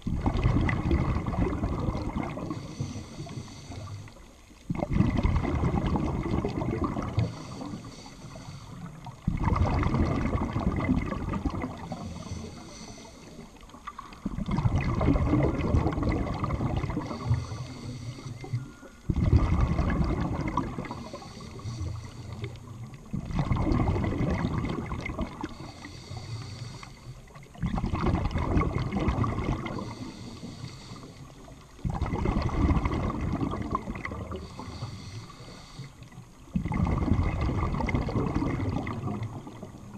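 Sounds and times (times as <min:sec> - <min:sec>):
rush of exhaled bubbles: 0:00.0 - 0:39.9
high regulator hiss: 0:07.2 - 0:08.9, 0:11.9 - 0:13.5, 0:20.9 - 0:22.6, 0:25.6 - 0:27.1, 0:34.4 - 0:36.1.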